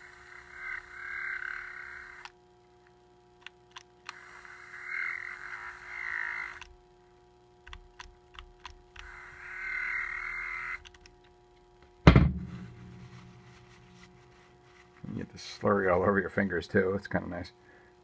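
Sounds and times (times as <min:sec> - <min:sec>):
tool set down with thump: 0:12.0 - 0:12.7.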